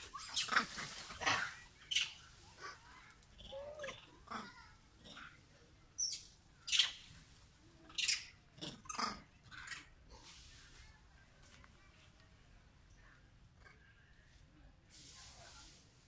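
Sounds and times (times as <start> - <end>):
macaques squeaking and chirping: 0.0 - 4.4, 6.0 - 7.1, 7.9 - 10.0.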